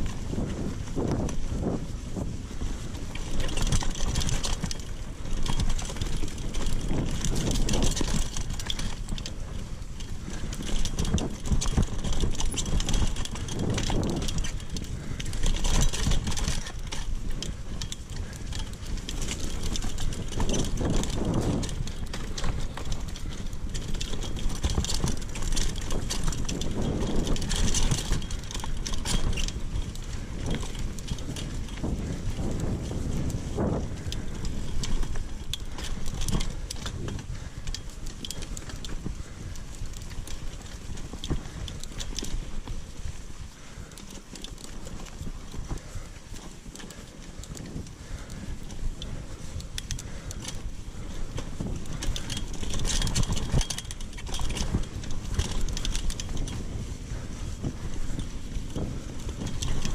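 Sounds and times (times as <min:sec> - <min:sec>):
bike rattling and knocking: 0:00.0 - 0:59.9
bike tyres on dirt: 0:00.0 - 0:59.9
wind buffeting microphone: 0:00.0 - 0:59.9.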